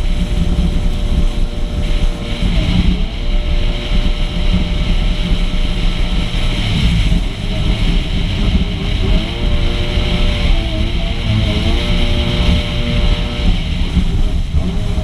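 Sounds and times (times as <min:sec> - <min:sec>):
personal watercraft engine: 0:00.0 - 0:15.0
water rushing: 0:00.0 - 0:15.0
wind buffeting microphone: 0:00.0 - 0:15.0.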